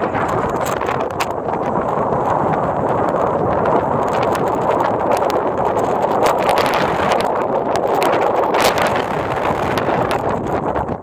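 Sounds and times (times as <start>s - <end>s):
blizzard wind on microphone: 0.0s - 11.0s
sharp crackles: 0.0s - 11.0s.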